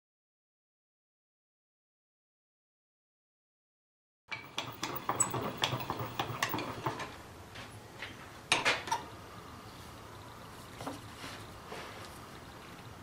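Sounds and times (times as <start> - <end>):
lathe crank metal clicks: 4.3 - 7.2.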